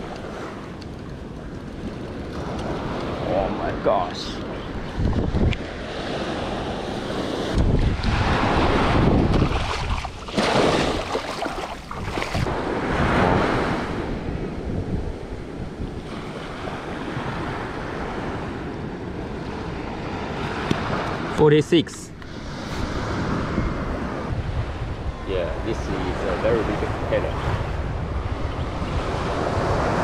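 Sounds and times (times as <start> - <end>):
wind buffeting microphone: 0.0 - 21.4, 22.1 - 30.0
surf breaking on beach: 5.3 - 14.4.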